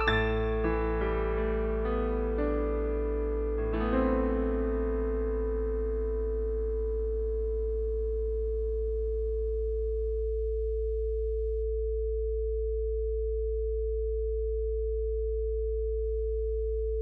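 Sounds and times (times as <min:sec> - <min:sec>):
high steady sine tone: 0:00.0 - 0:17.0
low sine hum: 0:00.0 - 0:17.0.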